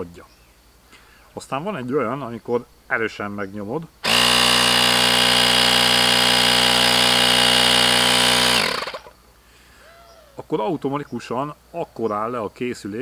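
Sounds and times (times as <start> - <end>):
air compressor whining: 4.0 - 9.1.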